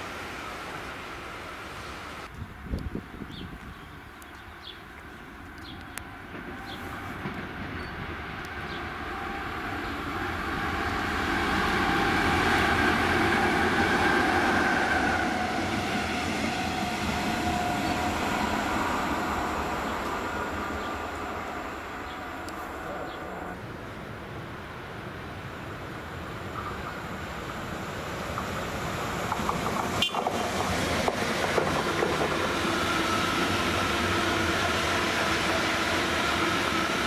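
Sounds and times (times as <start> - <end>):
diesel locomotive engine: 4.0 - 37.0
train wheels rolling: 5.8 - 23.5, 26.5 - 37.0.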